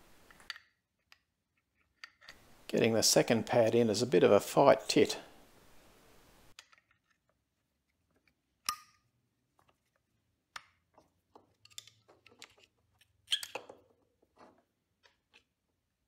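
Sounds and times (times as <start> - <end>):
screwdriver clicks and scrapes on metal: 0.3 - 2.4, 10.6 - 15.5.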